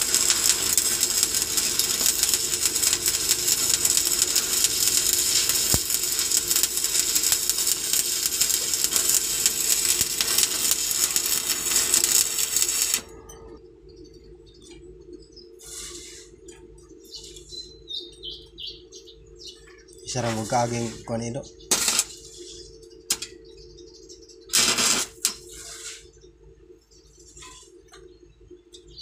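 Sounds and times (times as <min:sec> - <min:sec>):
arc welding crackle: 0:00.0 - 0:13.6, 0:15.6 - 0:16.6, 0:20.0 - 0:23.4, 0:24.2 - 0:26.2
steady hum: 0:00.0 - 0:29.0.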